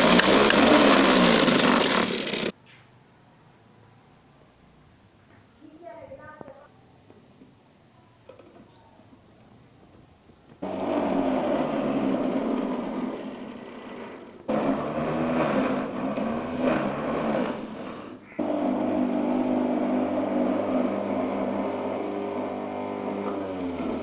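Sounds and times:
juicer motor shredding carrots: 0.0 - 2.5, 10.6 - 24.0.

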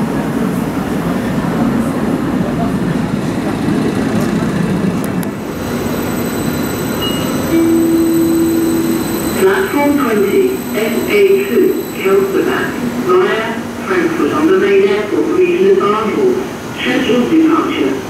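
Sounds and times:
high whistling tones of train: 0.0 - 18.0
train rumbling past: 0.0 - 18.0.

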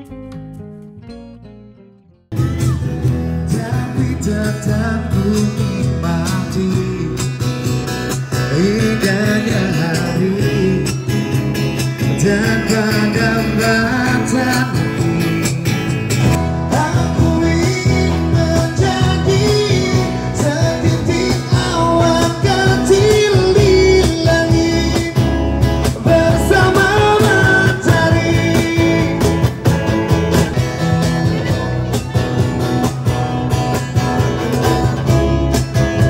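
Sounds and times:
guitar: 0.0 - 36.0
steady bass line: 0.0 - 36.0
person singing: 16.4 - 29.6.

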